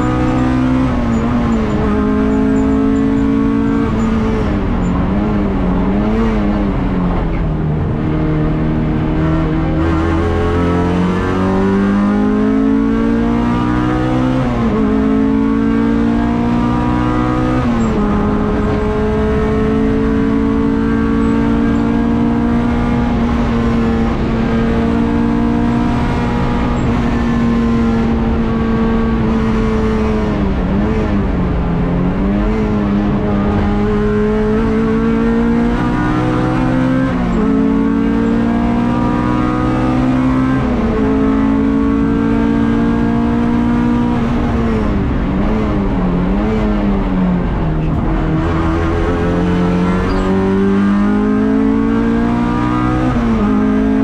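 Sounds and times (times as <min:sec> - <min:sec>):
race car engine at hard throttle: 0:00.0 - 0:54.0.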